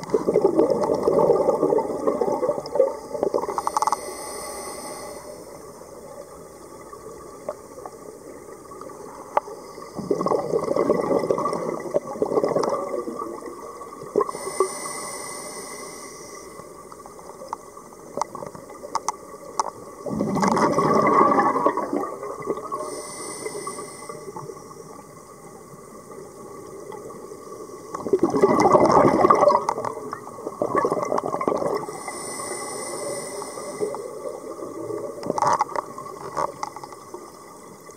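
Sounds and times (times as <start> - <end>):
exhaled bubbles underwater: 0.0 - 3.8, 5.7 - 14.7, 16.5 - 37.9
regulator inhalation hiss: 3.5 - 5.8, 14.2 - 16.9, 22.7 - 25.0, 31.9 - 34.4.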